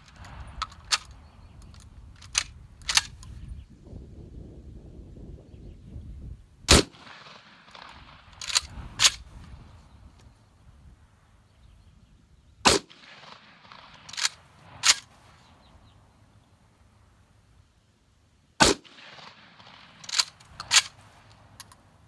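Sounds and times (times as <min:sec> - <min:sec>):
shotgun blasts: 0:06.7 - 0:09.3, 0:12.6 - 0:15.3, 0:18.6 - 0:21.2.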